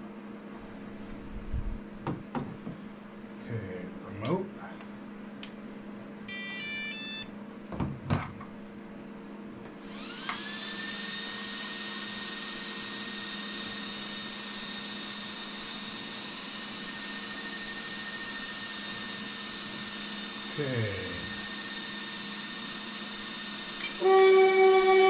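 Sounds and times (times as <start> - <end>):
electric motor whine: 9.8 - 25.0.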